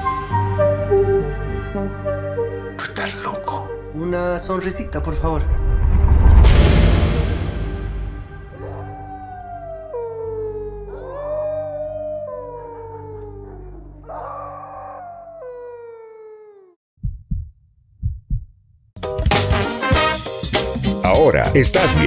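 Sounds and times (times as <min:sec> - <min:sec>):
dog howling: 0:08.5 - 0:16.8
short low thumps: 0:17.0 - 0:18.8.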